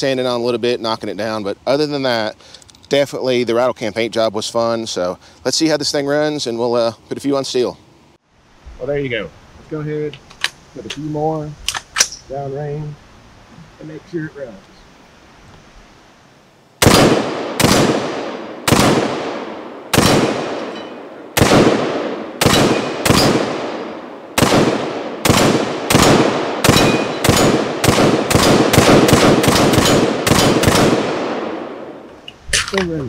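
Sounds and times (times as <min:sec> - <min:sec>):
rifle shots: 0:16.8 - 0:32.0.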